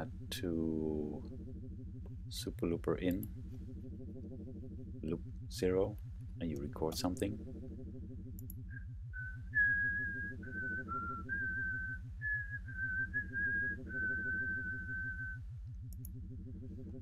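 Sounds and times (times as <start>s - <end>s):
low pulsing hum: 0.0s - 17.0s
person whistling: 8.7s - 15.4s.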